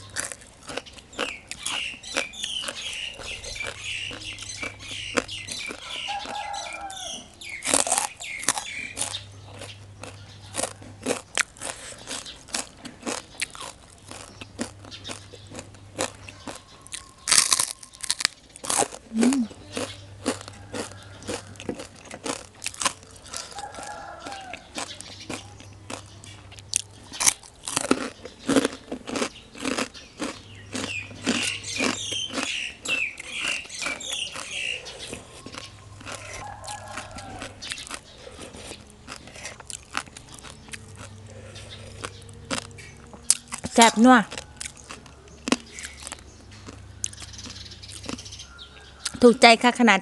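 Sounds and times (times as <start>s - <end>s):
crunching and chewing pork rind: 0.0s - 49.8s.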